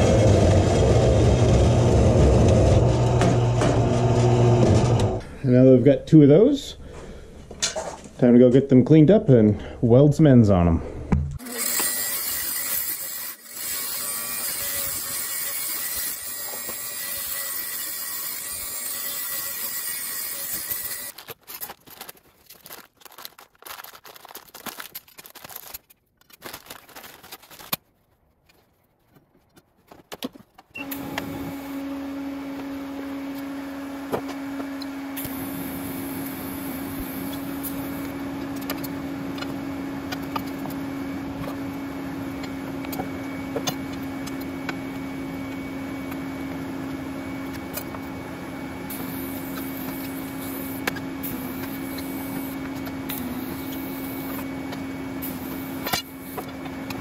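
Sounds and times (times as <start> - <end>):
grinder grinding steel pipe: 11.4 - 21.2, 48.8 - 57.0.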